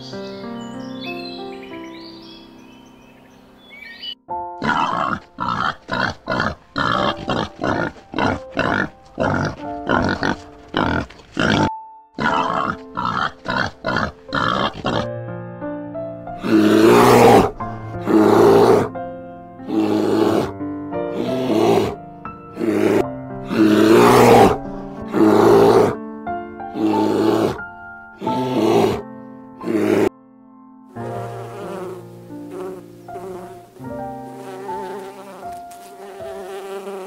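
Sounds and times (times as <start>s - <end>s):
background music: 0.0s - 37.0s
animal grunting: 4.6s - 15.1s, 16.4s - 19.0s, 19.6s - 26.0s, 26.7s - 29.0s, 29.6s - 30.1s.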